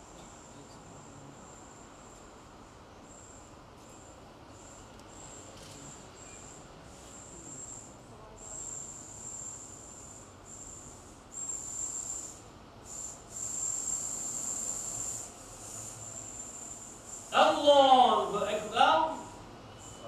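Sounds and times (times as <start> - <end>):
high-pitched insect trill: 3.0 - 6.6, 7.2 - 18.7, 19.6 - 20.0.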